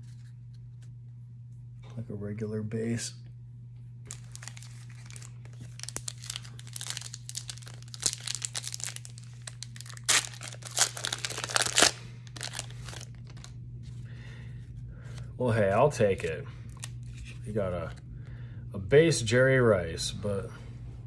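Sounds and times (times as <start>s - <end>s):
foil wrapper crinkling and tearing: 4.1s - 13.6s.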